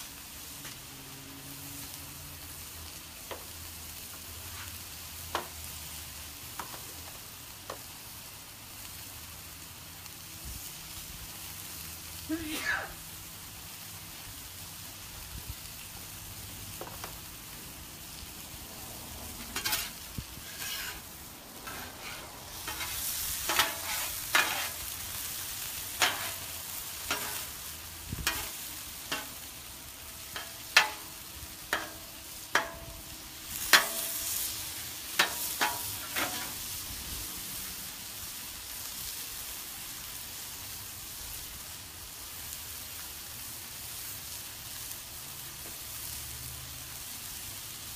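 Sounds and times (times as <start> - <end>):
chicken sizzling on griddle: 0.0 - 47.9
metal spatula scraping griddle: 4.1 - 5.5, 19.3 - 36.9.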